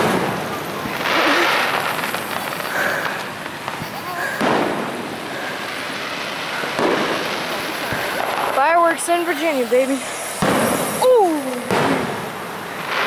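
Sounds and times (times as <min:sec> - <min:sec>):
faint voices of onlookers: 0:00.0 - 0:04.8
fireworks bursting: 0:00.0 - 0:13.0.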